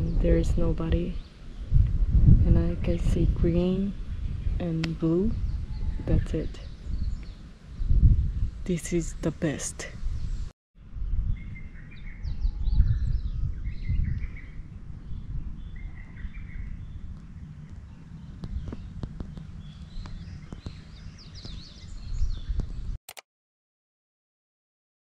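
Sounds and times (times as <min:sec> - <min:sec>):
wind buffeting microphone: 0:00.0 - 0:23.0
birds chirping and calling: 0:18.3 - 0:22.9.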